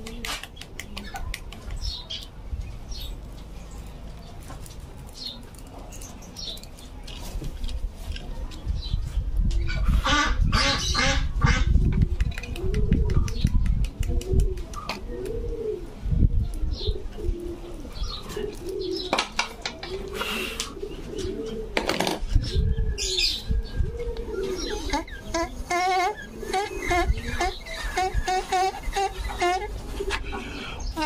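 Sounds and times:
pigeons cooing: 9.6 - 31.0.

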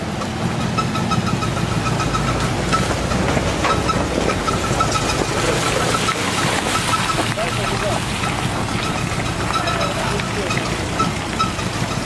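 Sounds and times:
suv engine running: 0.0 - 12.0.

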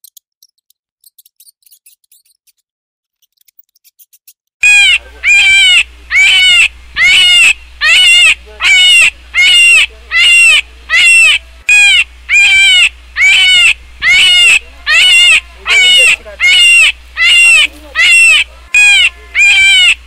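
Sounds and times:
high-pitched animal call: 4.6 - 20.0
low hum: 4.6 - 20.0.

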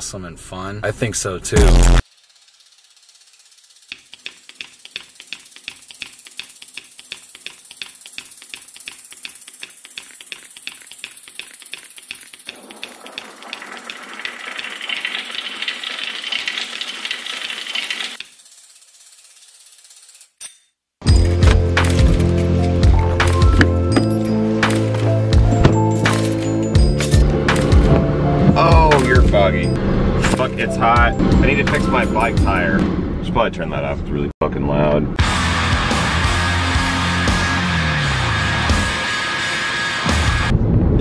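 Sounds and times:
music: 1.6 - 2.0, 21.0 - 32.8, 35.2 - 40.6
bicycle freewheel ticking: 1.6 - 20.4.

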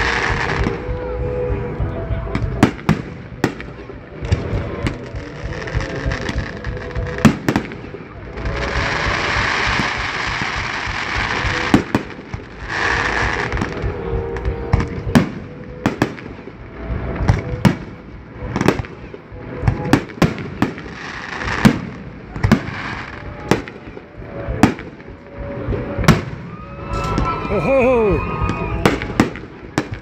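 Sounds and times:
fireworks bangs: 0.0 - 30.0
fireworks hiss and crackle: 0.0 - 30.0.

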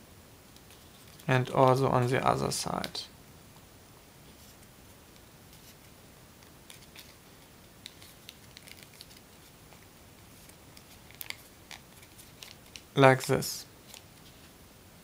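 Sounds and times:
paper crinkles and ticks: 0.5 - 1.3, 4.5 - 12.9, 13.8 - 14.5
paper rustling: 6.7 - 12.9.

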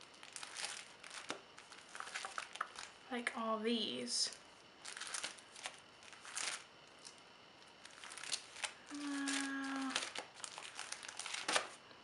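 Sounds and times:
plastic pages rustling: 0.0 - 3.0, 4.8 - 11.8
person humming: 8.8 - 10.2.

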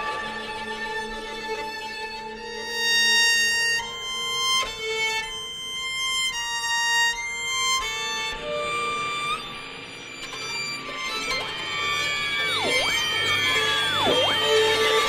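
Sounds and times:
violins bowing high notes: 0.0 - 4.4, 8.6 - 15.0.

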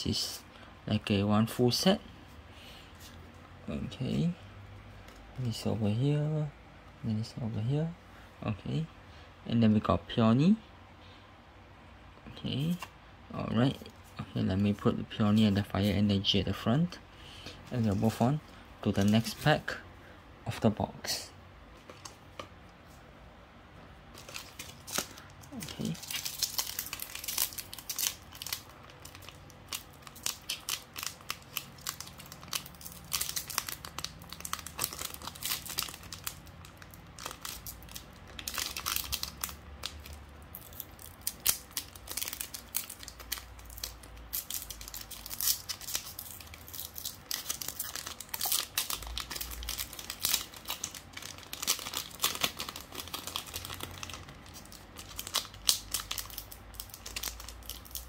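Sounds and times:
foil wrapper crinkling and tearing: 24.2 - 58.0.

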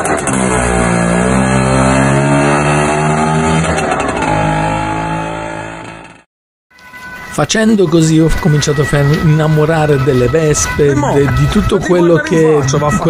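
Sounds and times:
two-stroke scooter engine revving: 0.0 - 6.2.

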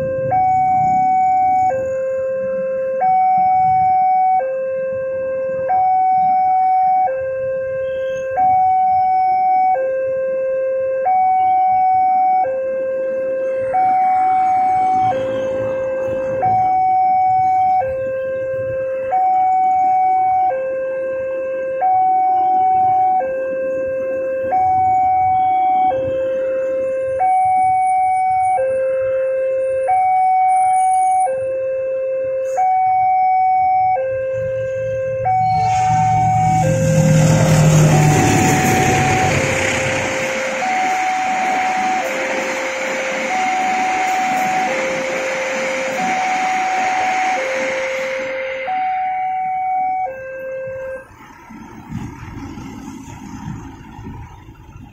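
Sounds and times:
two-tone crossing alarm: 0.0 - 54.9
train coaches rolling on rails: 35.5 - 48.6.

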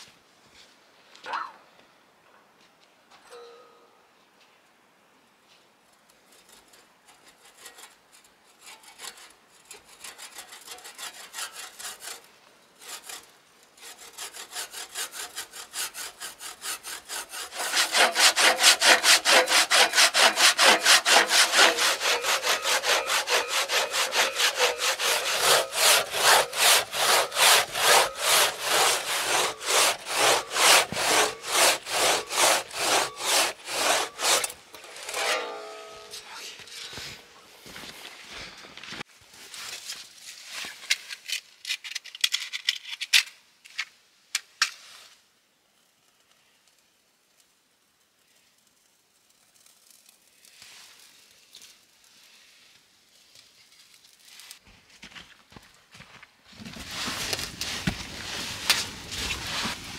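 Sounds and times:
hand saw cutting wood: 6.5 - 37.2, 56.8 - 59.9.

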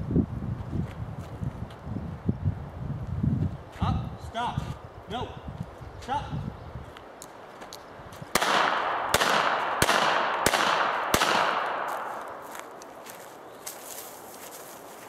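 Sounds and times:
revolver shots with echo: 8.4 - 11.9.

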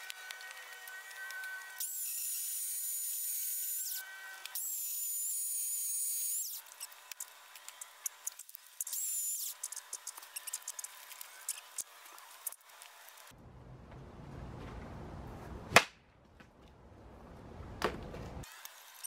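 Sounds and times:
electric chainsaw cutting logs: 0.0 - 13.3, 18.4 - 19.0.

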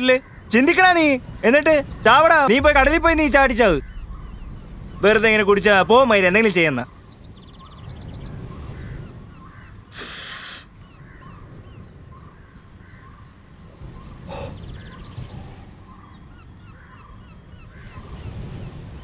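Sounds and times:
small birds chirping: 0.0 - 18.7
low wind rumble: 0.3 - 9.7.

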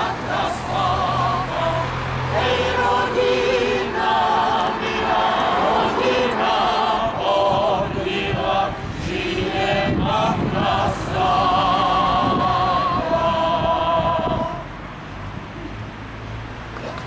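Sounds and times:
mixed choir singing a hymn: 0.0 - 14.8.

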